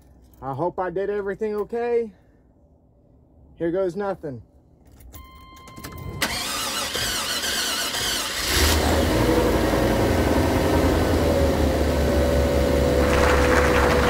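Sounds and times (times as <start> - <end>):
car engine cranking and idling: 6.2 - 14.0.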